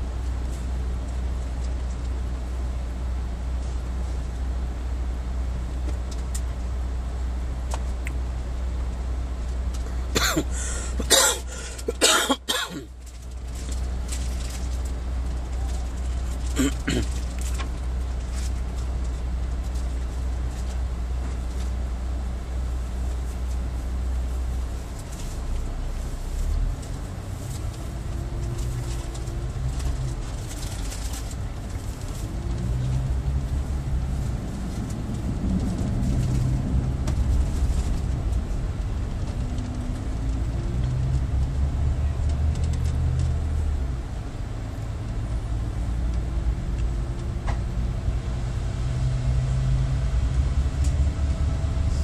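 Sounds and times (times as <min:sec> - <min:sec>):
bus engine idling: 0:00.0 - 0:52.0
person coughing: 0:10.1 - 0:12.9, 0:16.6 - 0:17.2.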